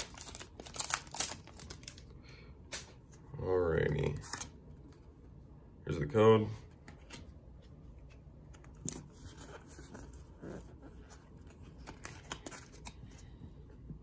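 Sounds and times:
trading cards rustling and clicking: 0:00.0 - 0:02.1, 0:08.0 - 0:14.0.

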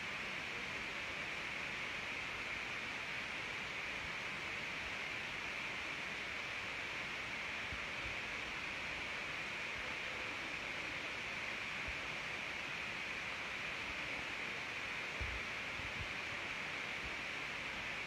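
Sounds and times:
steady background hiss: 0:00.0 - 0:18.0.

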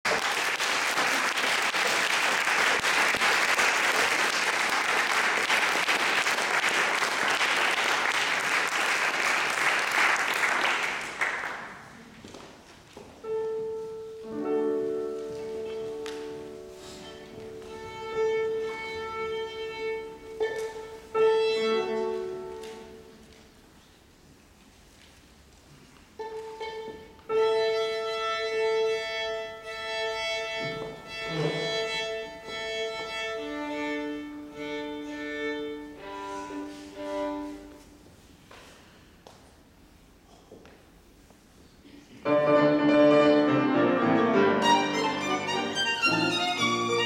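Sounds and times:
audience applauding: 0:00.0 - 0:12.0
piano: 0:13.0 - 0:24.4, 0:26.2 - 0:38.1, 0:42.2 - 0:47.0
violin bowed notes: 0:13.2 - 0:23.2, 0:26.2 - 0:37.9, 0:42.3 - 0:47.0.

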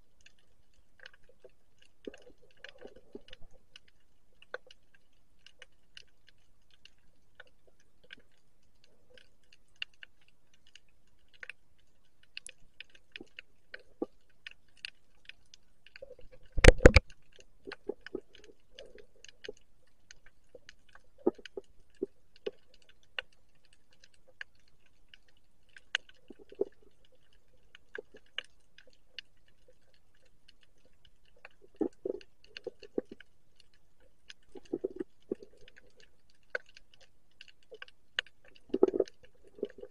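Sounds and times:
underwater clicks and pops: 0:14.8 - 0:19.6, 0:34.3 - 0:39.9.

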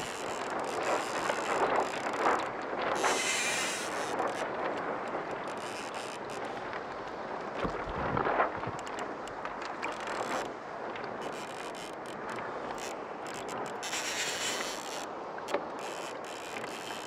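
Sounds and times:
sea noise: 0:00.0 - 0:17.0
wind buffeting microphone: 0:06.4 - 0:09.6.

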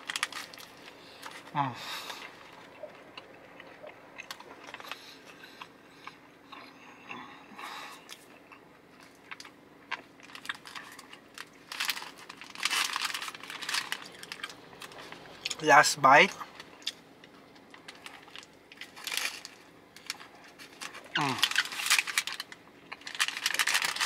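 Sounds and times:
paper wrapper crinkling: 0:00.0 - 0:01.5, 0:10.2 - 0:15.7, 0:17.6 - 0:24.0
close-up chewing: 0:00.0 - 0:15.6.

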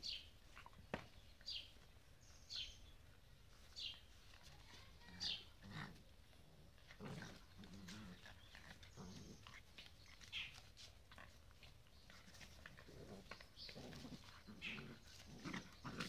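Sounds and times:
puppies grunting and growling: 0:04.5 - 0:10.6, 0:11.3 - 0:16.0.

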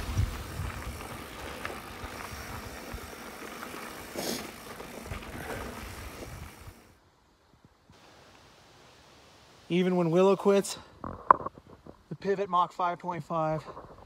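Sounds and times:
bike tyre and wind rush: 0:00.0 - 0:08.3.

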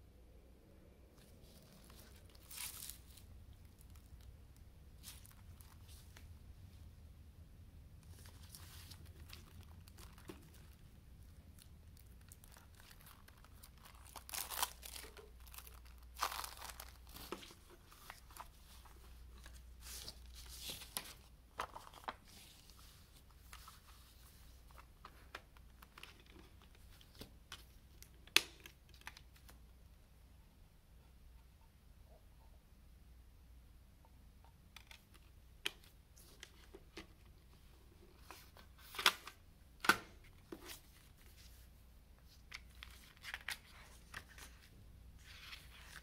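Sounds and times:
cellophane wrap tearing and crinkling: 0:01.7 - 0:04.2, 0:11.6 - 0:17.4.

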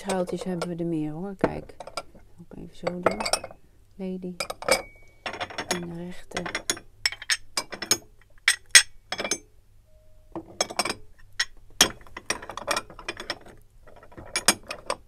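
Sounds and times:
stoneware dishes clinking: 0:02.8 - 0:03.6.

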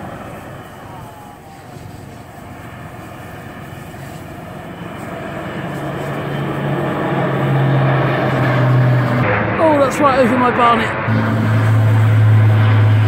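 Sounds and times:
aircraft engines overhead: 0:00.0 - 0:13.0
low steady hum: 0:00.0 - 0:13.0.

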